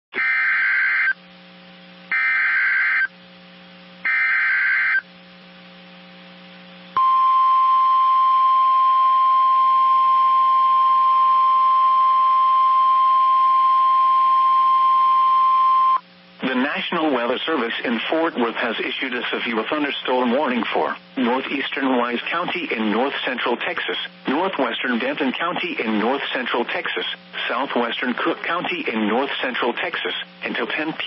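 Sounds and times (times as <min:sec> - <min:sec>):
steady warning alarm tone: 0:00.2 - 0:01.2, 0:02.1 - 0:03.1, 0:04.1 - 0:05.0
warbling data tones: 0:02.1 - 0:03.1.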